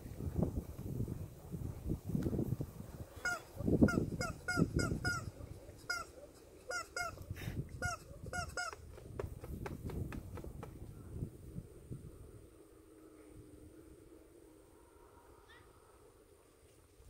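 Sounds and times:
squeaky toy honking squeaks: 0:03.2 - 0:05.3, 0:05.9 - 0:06.1, 0:06.7 - 0:07.2, 0:07.8 - 0:08.8.

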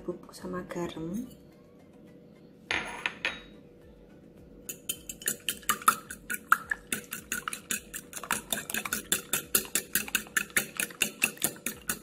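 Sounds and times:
fork beating eggs in a bowl: 0:04.7 - 0:12.0.

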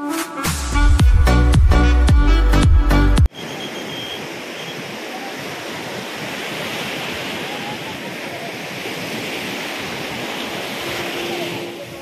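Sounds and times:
surf washing up shore: 0:03.3 - 0:12.0.

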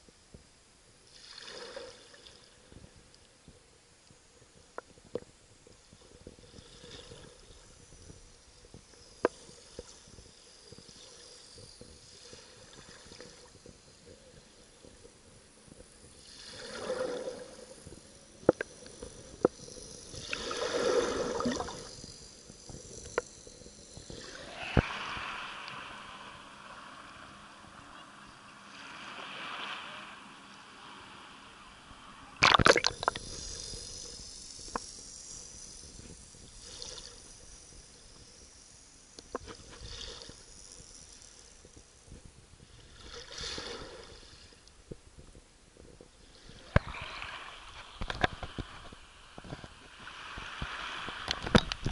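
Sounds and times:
muffled underwater water movement: 0:00.0 - 0:35.1.

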